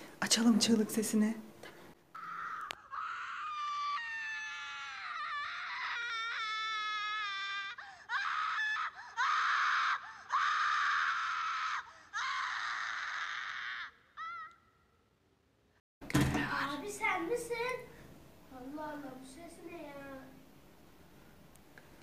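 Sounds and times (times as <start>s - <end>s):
recorded screams through phone speaker: 2.1s - 14.8s.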